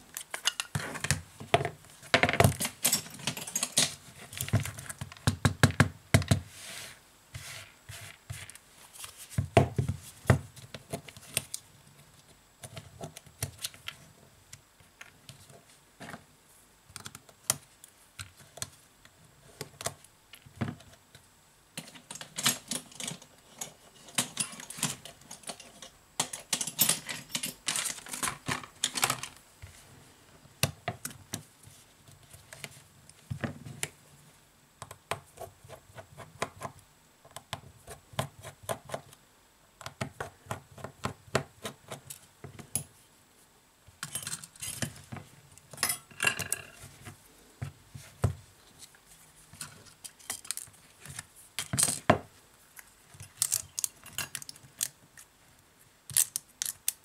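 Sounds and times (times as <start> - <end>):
small parts clicking: 52.8 - 55.3, 56.1 - 57.0.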